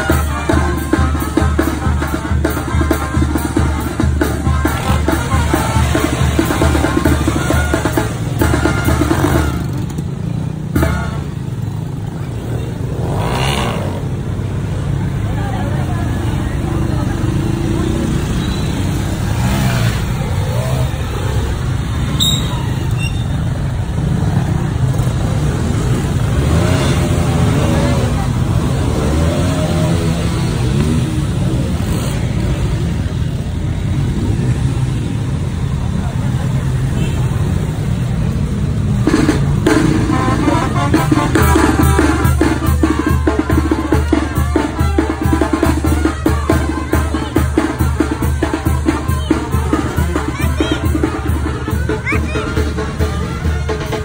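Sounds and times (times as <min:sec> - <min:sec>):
steady bass drum beat: 0:00.0 - 0:11.4, 0:38.6 - 0:54.0
motorcycles riding past: 0:00.0 - 0:54.0
music with drums: 0:00.0 - 0:54.0.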